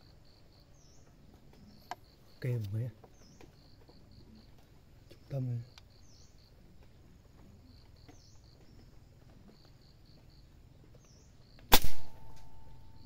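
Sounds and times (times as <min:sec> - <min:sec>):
silenced air rifle shot: 0:11.7 - 0:13.0.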